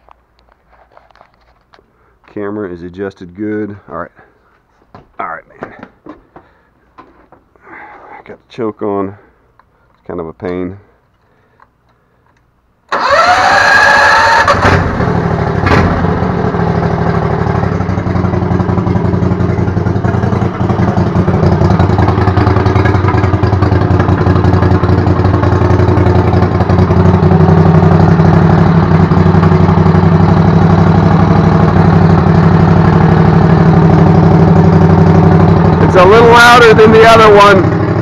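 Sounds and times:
go-kart engine starting and running: 12.9s - 38.0s.

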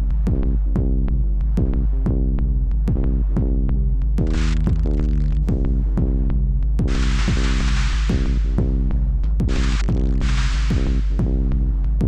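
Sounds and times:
held low bass: 0.0s - 12.0s
electronic music with drum beat: 4.2s - 12.0s.

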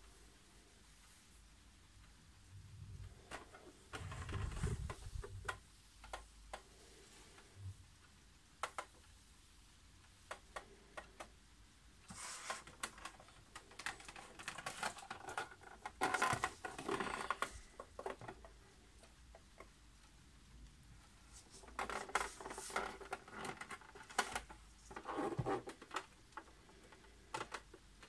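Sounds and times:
rubbing and knocking: 21.3s - 26.0s.

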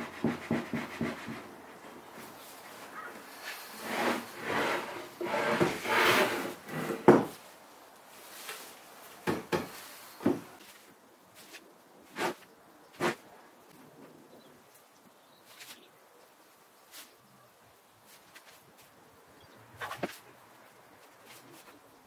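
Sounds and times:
plywood panels scraping together: 3.2s - 7.4s, 11.4s - 13.2s, 19.8s - 20.2s.

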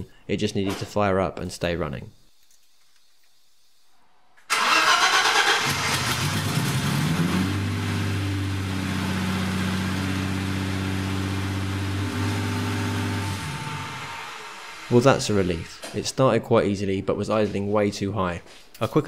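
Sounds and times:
car engine starting and idling: 4.5s - 15.7s.

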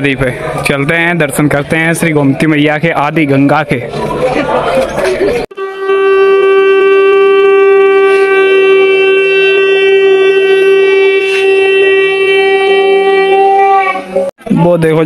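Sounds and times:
long steady horn note: 5.5s - 14.3s.

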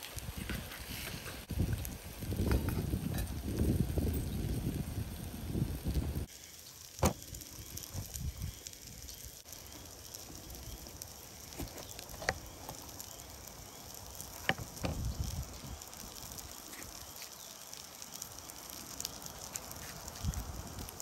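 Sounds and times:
campfire crackling: 0.0s - 21.0s
sharp pops from fire: 5.8s - 21.0s.

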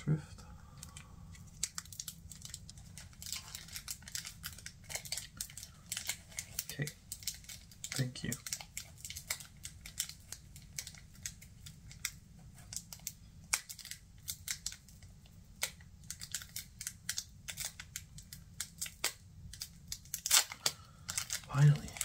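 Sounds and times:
foil wrapper crinkling: 0.8s - 22.0s.

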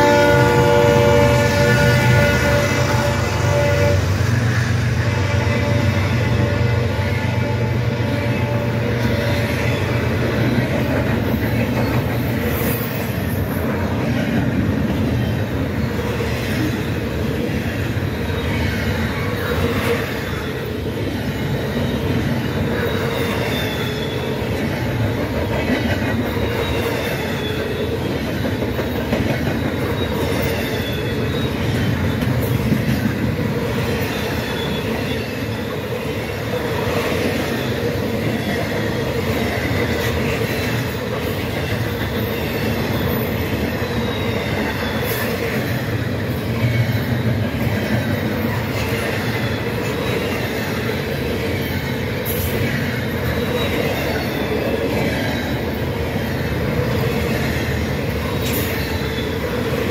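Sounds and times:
freight train wheels rumbling: 0.0s - 59.9s
wheels squealing: 18.0s - 25.0s, 25.6s - 59.9s.

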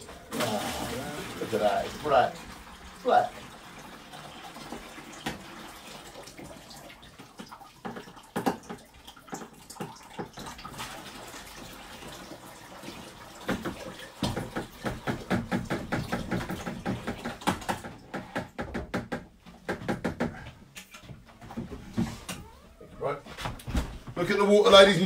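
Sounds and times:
water splashing and trickling: 0.0s - 18.5s.

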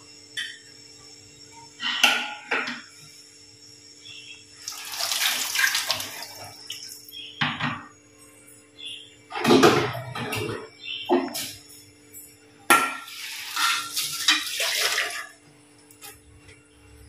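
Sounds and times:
water pouring into steel vessel: 4.7s - 6.5s, 13.1s - 15.3s
steel pots clanking: 12.7s - 15.3s.

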